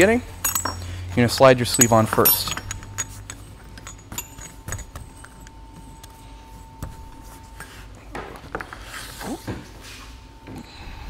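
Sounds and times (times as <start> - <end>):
metal parts clicking: 0.4 - 0.9, 1.5 - 6.2.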